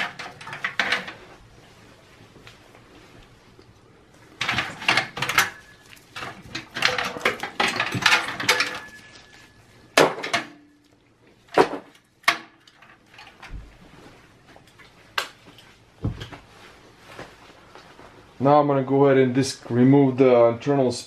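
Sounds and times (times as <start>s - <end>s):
cables rattling and clicking: 0.0s - 1.7s, 3.6s - 9.4s, 10.9s - 14.0s.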